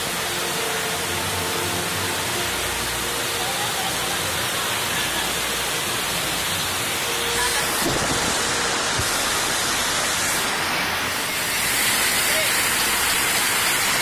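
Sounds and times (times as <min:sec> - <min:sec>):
water rushing over rocks: 0:00.0 - 0:14.0.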